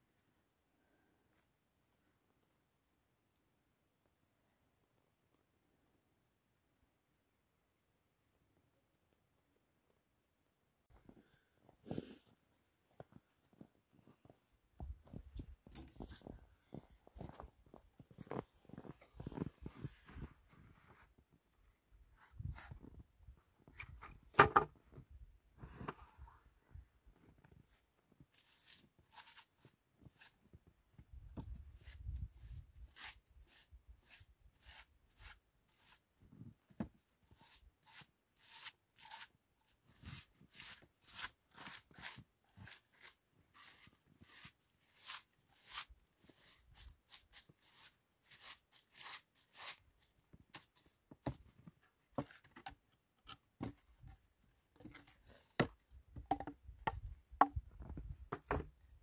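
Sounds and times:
twig broom sweeping snow: 28.3 - 30.4, 31.7 - 36.0, 37.2 - 50.9
wooden pieces knocking: 56.2 - 57.6.

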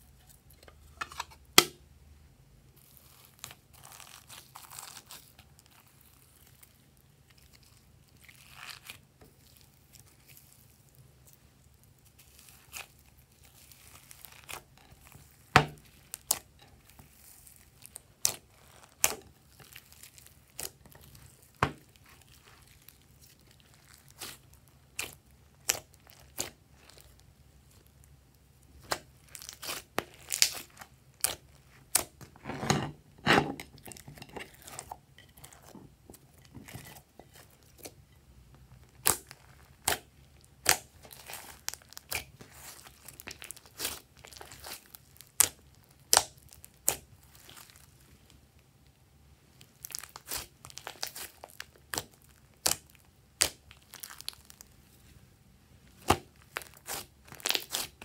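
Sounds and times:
hands squeezing sticky slime: 2.8 - 28.0, 28.7 - 32.3, 38.8 - 48.1, 49.6 - 54.8, 56.0 - 58.0.

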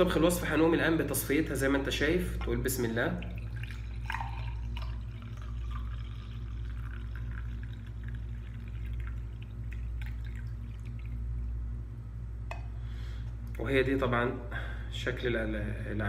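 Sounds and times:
steady low hum: 0.0 - 16.0
liquid pouring into glass: 2.8 - 11.6.

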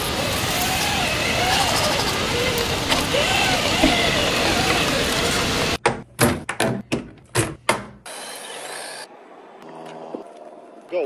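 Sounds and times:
rc truck motor running: 0.0 - 5.8
water rushing over toy truck: 0.0 - 5.8.

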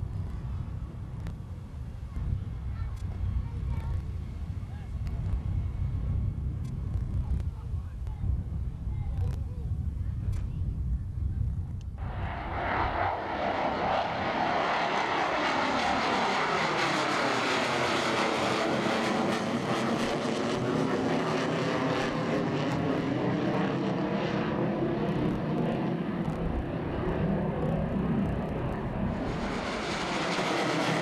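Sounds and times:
jets roaring past: 12.0 - 31.0.

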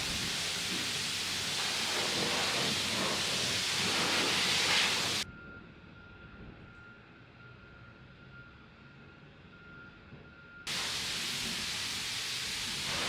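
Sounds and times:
pressure wand spraying water: 0.0 - 5.2, 10.7 - 13.0.

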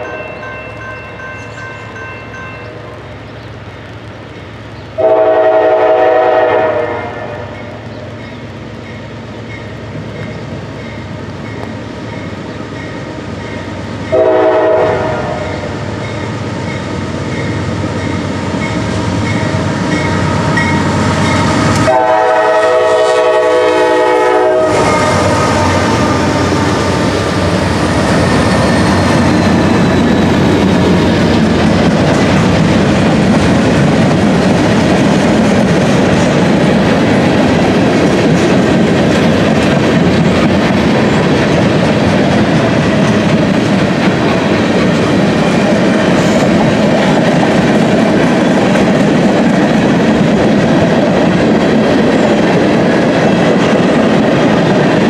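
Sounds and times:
bell ringing: 0.0 - 3.0
locomotive air horn: 5.0 - 7.6, 14.1 - 15.8, 20.4 - 26.6
locomotives passing: 14.9 - 55.0.

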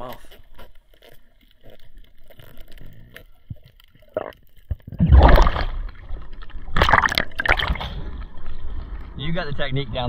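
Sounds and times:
water splashing and sloshing: 3.4 - 9.2.

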